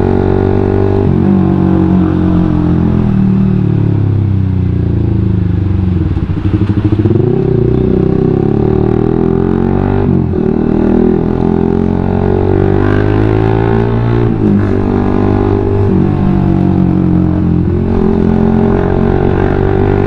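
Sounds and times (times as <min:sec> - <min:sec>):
motorcycle engine on the road: 0:00.0 - 0:20.0.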